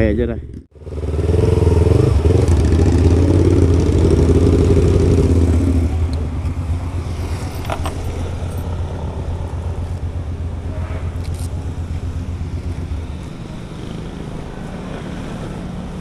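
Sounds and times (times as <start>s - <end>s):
motorcycle engine idling: 0.7s - 16.0s.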